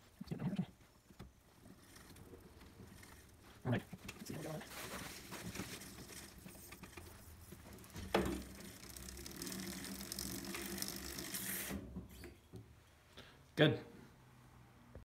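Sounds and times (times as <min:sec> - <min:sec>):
bicycle chain whirring: 0:01.7 - 0:03.6, 0:04.8 - 0:12.2
bicycle chain ratcheting clicks: 0:07.7 - 0:11.7.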